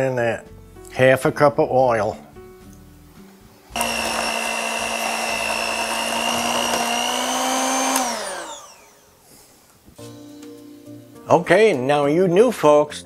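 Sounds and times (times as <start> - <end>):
electric mixer motor whine: 3.7 - 9.2.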